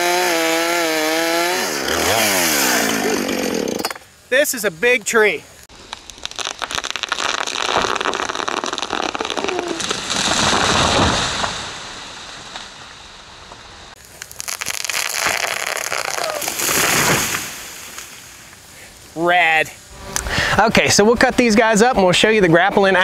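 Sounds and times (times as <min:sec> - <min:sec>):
tree falling with crackling crash: 0:05.7 - 0:18.7.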